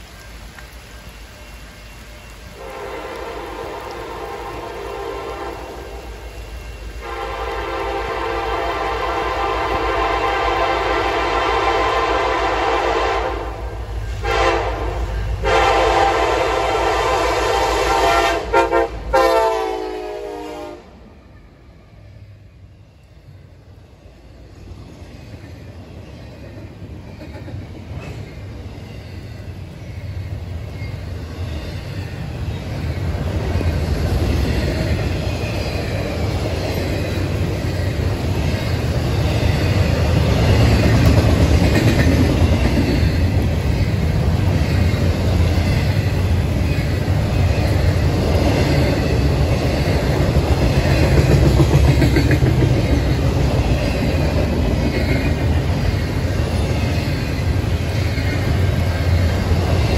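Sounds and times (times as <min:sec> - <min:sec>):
freight train rumbling past: 0:00.0 - 0:59.9
wheels clicking on rails: 0:24.7 - 0:59.9.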